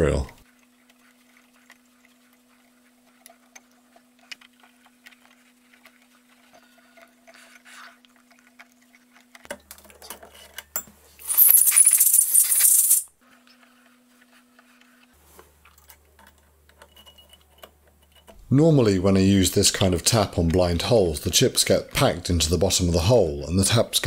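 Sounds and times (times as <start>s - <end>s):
rattles: 11.3s - 13.0s.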